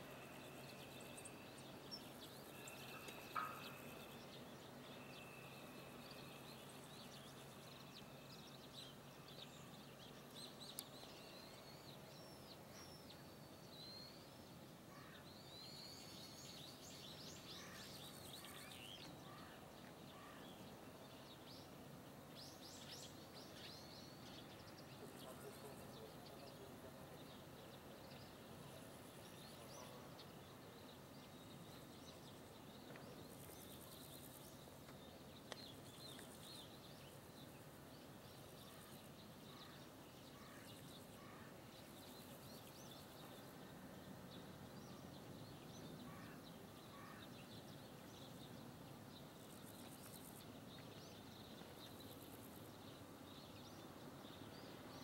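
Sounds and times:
low background hiss: 0:00.0 - 0:55.0
small birds chirping: 0:15.0 - 0:55.0.

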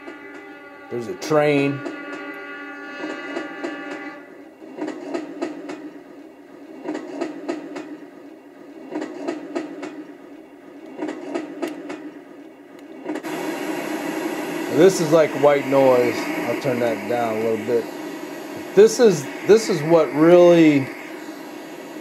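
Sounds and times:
rail wheels clickety-clack: 0:00.0 - 0:00.6, 0:01.2 - 0:13.4
train rumble from small speaker: 0:00.0 - 0:22.0.

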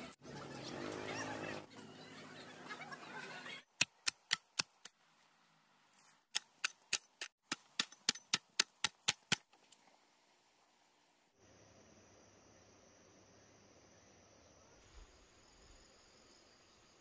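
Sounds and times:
hoe chopping dry ground: 0:06.3 - 0:09.6.

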